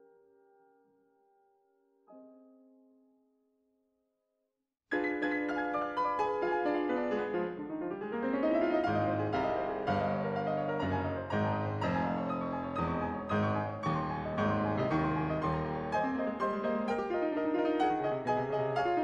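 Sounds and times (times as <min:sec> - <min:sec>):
background piano music: 0:04.9 - 0:19.0.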